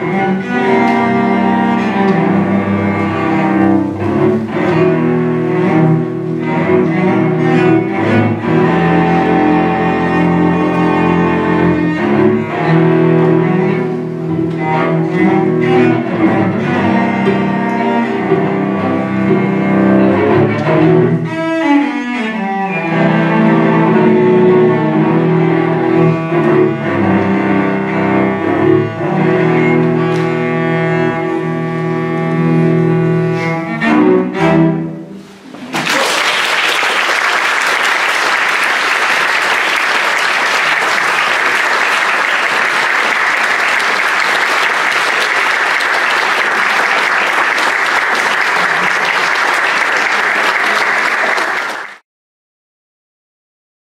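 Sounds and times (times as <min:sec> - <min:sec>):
live music with sliding pitches: 0:00.0 - 0:51.9
audience applause: 0:35.7 - 0:52.0.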